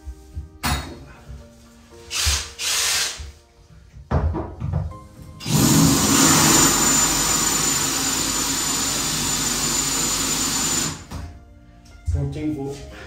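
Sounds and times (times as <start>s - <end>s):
drill grinding into tile: 2.1s - 3.2s, 5.4s - 11.1s.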